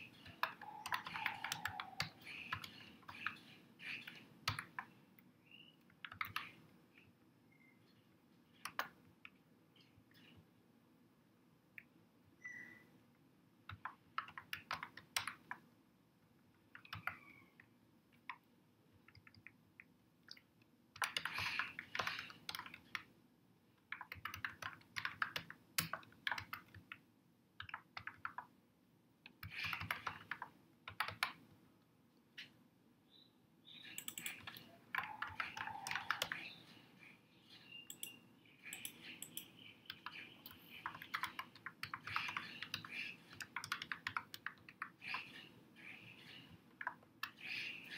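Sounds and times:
typing on computer keyboard: 0:00.1 - 0:05.0, 0:06.0 - 0:06.6, 0:13.7 - 0:15.6, 0:16.7 - 0:17.4, 0:19.0 - 0:20.4, 0:21.0 - 0:23.1, 0:23.9 - 0:27.0, 0:27.6 - 0:28.5, 0:29.3 - 0:31.4, 0:33.9 - 0:36.6, 0:37.9 - 0:45.5.

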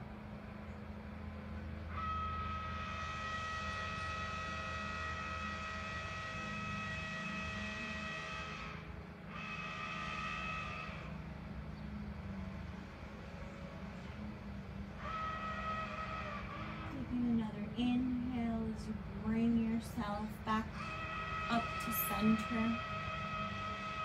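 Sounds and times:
steady low hum: 0:00.0 - 0:24.0
train horn blasts: 0:01.6 - 0:11.3, 0:14.9 - 0:24.0.

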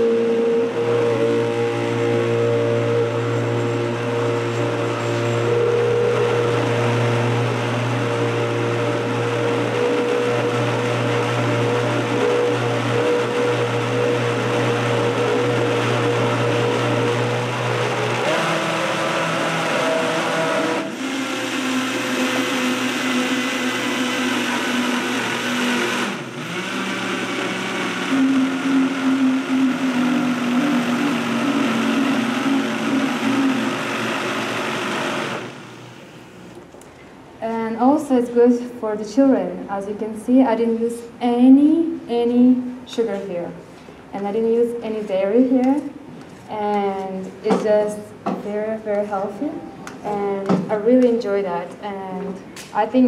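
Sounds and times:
blender running: 0:00.0 - 0:36.7.

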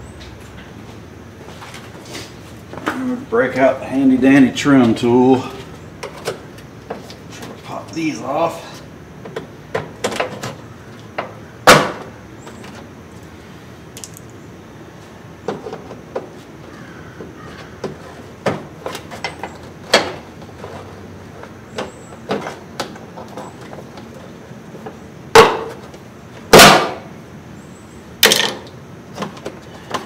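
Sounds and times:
plastic rivets clicking and snapping: 0:14.0 - 0:14.4.

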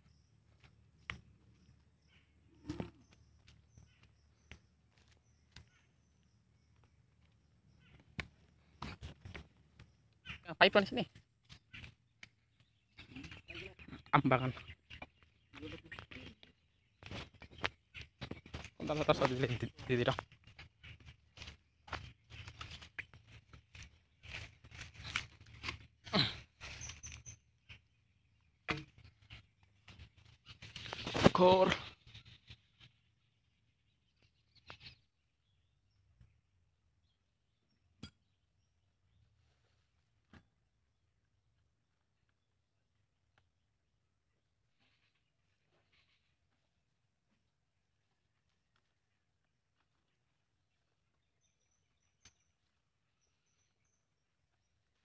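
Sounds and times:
footsteps on muddy ground: 0:00.0 - 0:10.4, 0:11.2 - 0:27.4
footsteps through grass: 0:15.2 - 0:27.9, 0:29.1 - 0:31.8.

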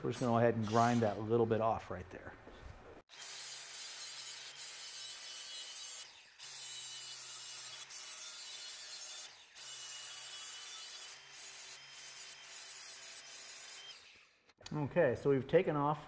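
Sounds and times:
angle grinder grinding steel: 0:00.0 - 0:01.4, 0:03.1 - 0:14.5.

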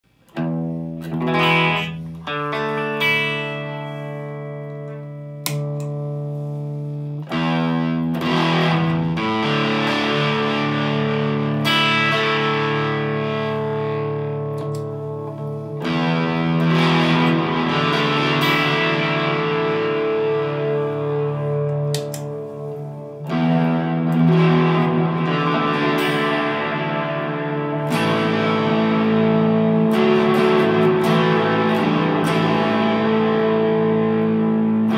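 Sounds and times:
distorted electric guitar chords: 0:00.0 - 0:34.9.

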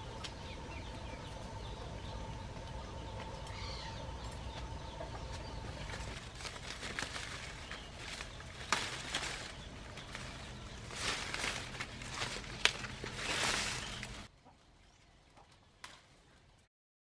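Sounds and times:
leaves and branches rustling: 0:02.5 - 0:14.3
stems and twigs snapping: 0:05.3 - 0:14.3, 0:15.4 - 0:16.1.

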